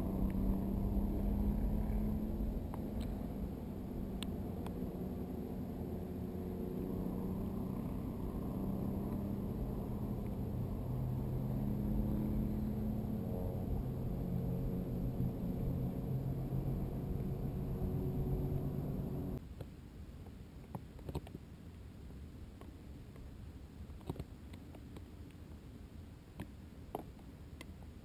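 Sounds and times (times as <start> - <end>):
faint hums: 0.0 - 19.4
low rumble of rushing air: 0.0 - 19.4.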